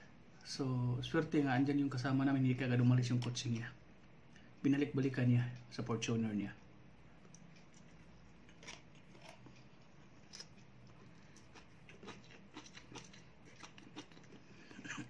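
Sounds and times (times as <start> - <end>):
low steady hum: 0.0 - 15.0
man chewing crunchy greens: 7.2 - 15.0.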